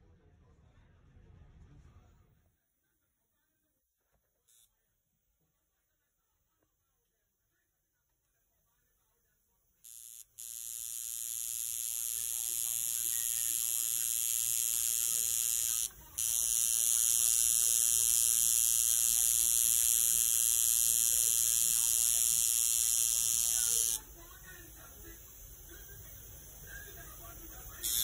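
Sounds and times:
small electric motor whirring: 9.9 - 24.2, 24.8 - 28.0.

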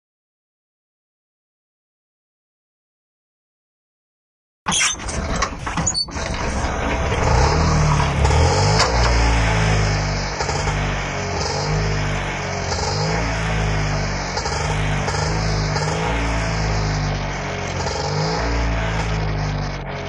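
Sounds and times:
small engine running and revving: 5.1 - 20.0.

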